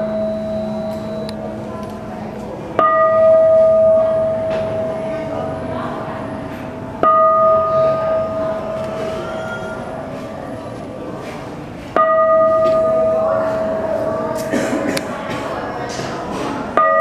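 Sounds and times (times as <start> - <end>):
bowl bell ringing: 0.0 - 10.1, 12.0 - 14.5, 16.8 - 17.0.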